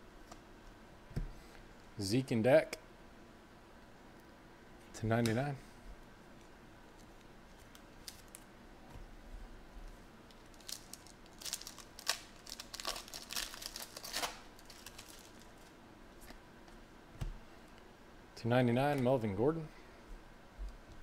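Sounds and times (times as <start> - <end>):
foil wrapper tearing and crinkling: 10.3 - 15.7.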